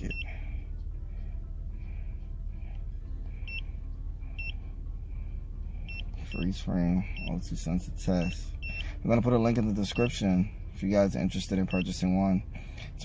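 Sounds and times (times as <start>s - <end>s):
steady low hum: 0.0s - 13.0s
short electronic beeps: 7.1s - 7.4s, 8.2s - 9.0s, 11.6s - 12.0s.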